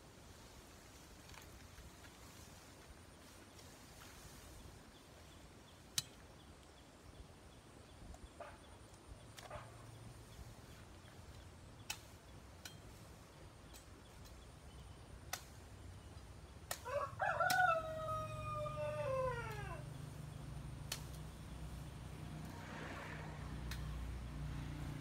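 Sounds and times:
rooster crowing: 16.8s - 19.8s
sharp clicks: 20.8s - 21.5s, 23.6s - 24.0s.

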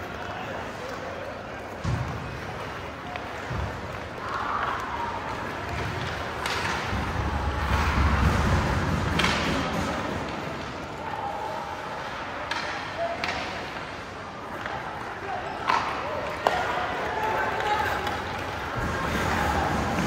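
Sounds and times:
puck and sticks knocking: 5.7s - 10.5s
skates scraping on ice: 17.3s - 20.0s.

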